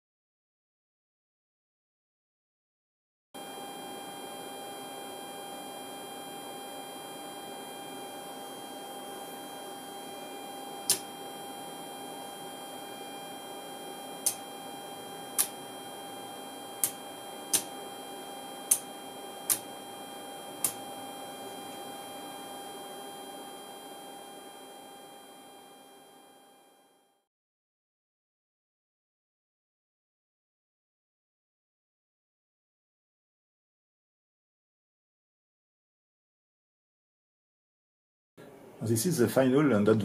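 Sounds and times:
electrical hum with tone: 3.4s - 27.2s.

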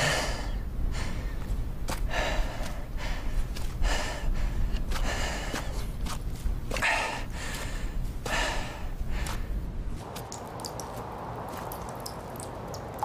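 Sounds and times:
man breathing hard: 0.0s - 5.9s, 6.7s - 9.6s
low steady rumble: 0.0s - 10.0s.

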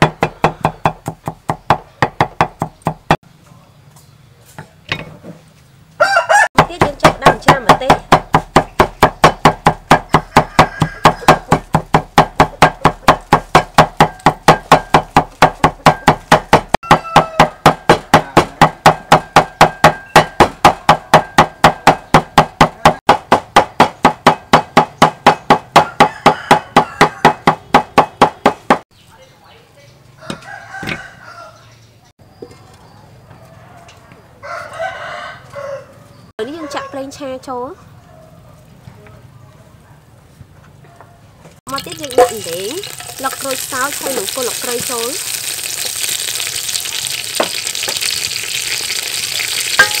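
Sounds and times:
cleaver chopping on wooden board: 0.0s - 3.2s, 6.6s - 28.8s.

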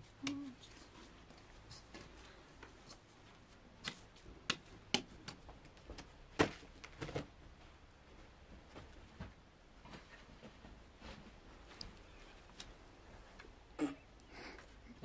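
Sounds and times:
sharp slaps and taps: 3.8s - 6.1s.

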